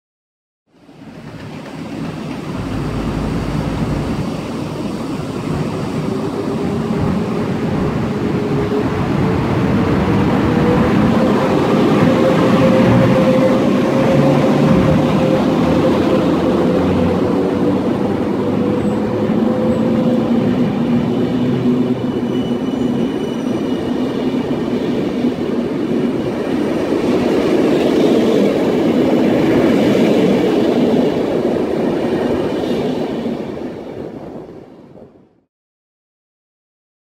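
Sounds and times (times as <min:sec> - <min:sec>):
train wheels on rail: 0:00.9 - 0:35.2
hum: 0:02.5 - 0:05.2.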